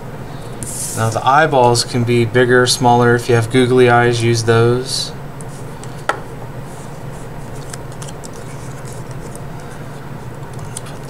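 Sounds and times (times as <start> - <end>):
steady low hum: 0.0 - 11.0
paper rustling and ticks: 7.5 - 9.8.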